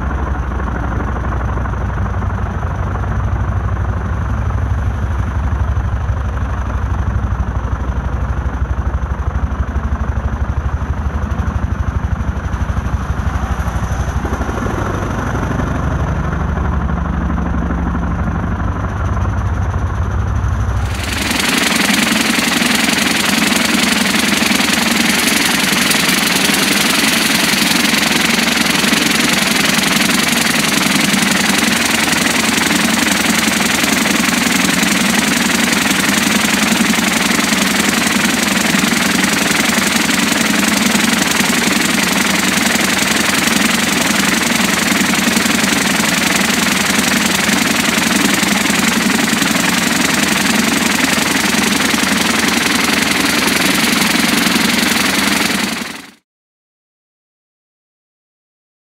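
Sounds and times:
low machine hum: 9.9s - 23.6s.

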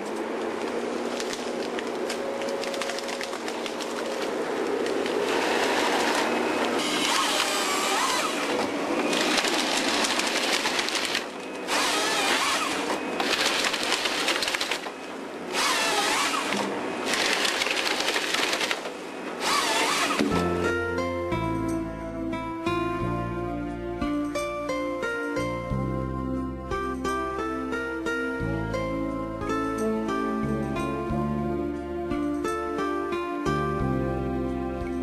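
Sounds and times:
branches and wood crackling: 0.0s - 20.4s
forestry harvester machine noise: 0.0s - 21.1s.

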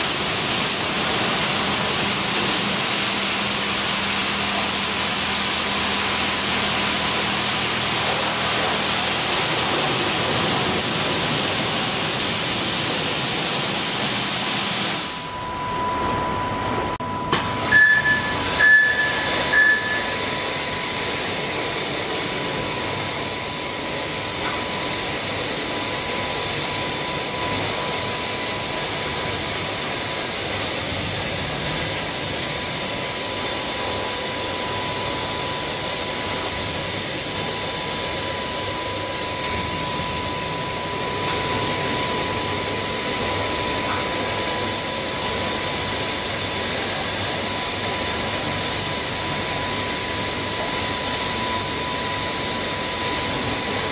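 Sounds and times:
high-pressure water spray hissing: 0.0s - 15.3s, 17.5s - 53.9s
machine whine: 0.0s - 53.9s
short beeps: 15.1s - 20.5s.

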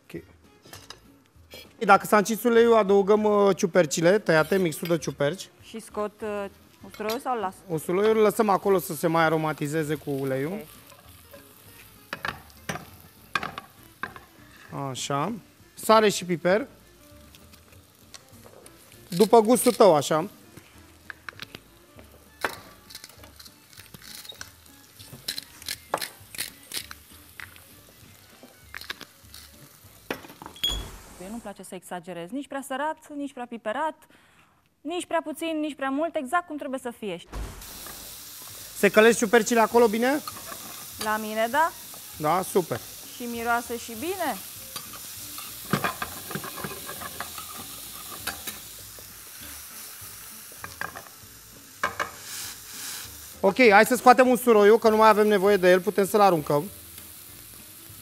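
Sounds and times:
mushrooms sizzling in a frying pan: 2.0s - 31.5s, 37.4s - 58.0s
utensil scraping a pan: 44.8s - 48.6s.

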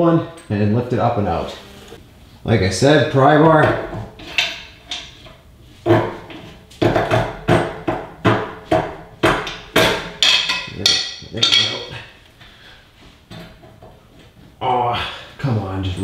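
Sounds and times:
sharp metal-on-metal knocks: 5.9s - 11.9s.

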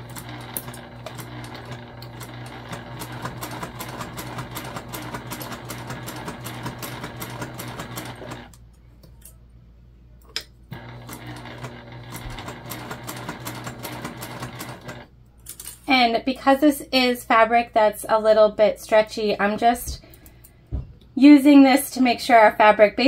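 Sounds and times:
sewing machine stitching: 0.0s - 8.5s, 10.7s - 15.1s.

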